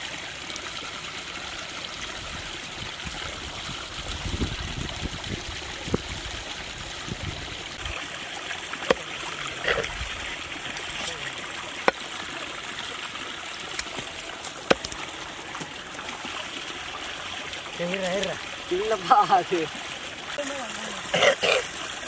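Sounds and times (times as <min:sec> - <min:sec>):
knife chopping on wooden block: 0:14.7 - 0:15.0.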